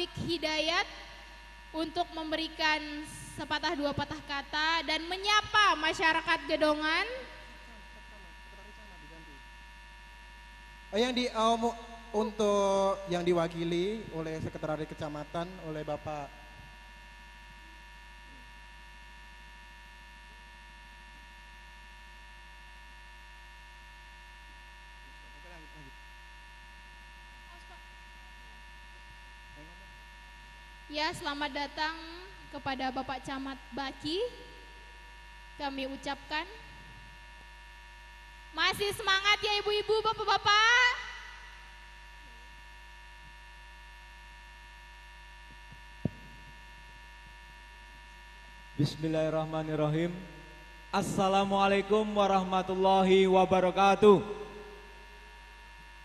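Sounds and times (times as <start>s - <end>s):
electrical hum and buzz: 0.0s - 56.0s.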